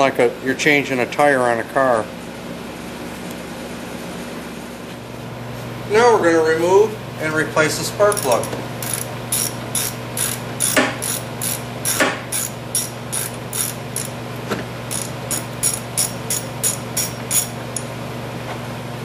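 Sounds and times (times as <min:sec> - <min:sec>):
ratchet wrench clicking: 0:08.1 - 0:14.1, 0:14.9 - 0:17.5.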